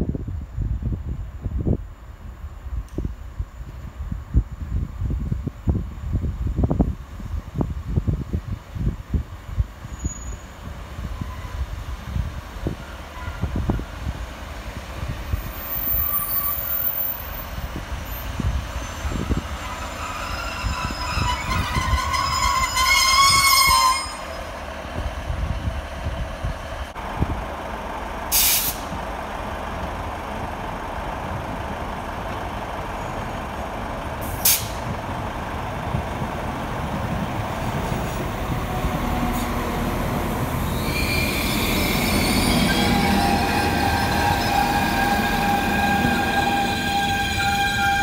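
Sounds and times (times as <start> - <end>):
diesel train approaching: 0.6 - 48.0
diesel train pulling away: 6.6 - 48.0
short sharp hisses: 28.3 - 28.9, 34.2 - 34.8
high whining tones: 38.9 - 48.0.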